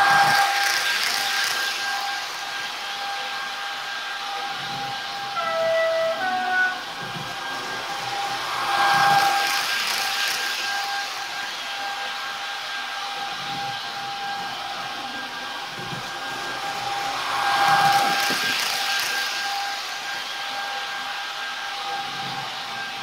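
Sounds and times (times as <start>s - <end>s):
blower-like fan noise: 0.0s - 23.0s
hiss: 0.0s - 23.0s
high electric tone: 5.2s - 7.1s.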